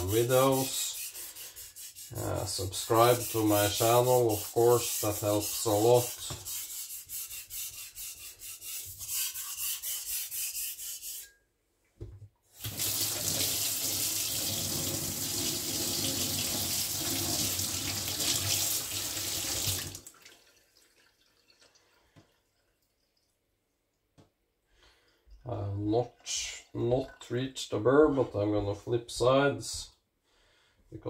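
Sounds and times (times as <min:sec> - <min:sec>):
cleaver rubbing on whetstone: 0:00.0 - 0:11.3.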